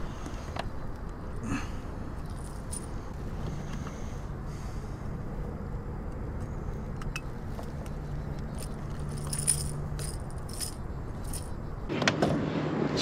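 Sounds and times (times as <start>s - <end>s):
steady low rumble: 0.0s - 11.9s
metal pliers and hooks jingling: 2.2s - 3.0s, 8.5s - 11.6s.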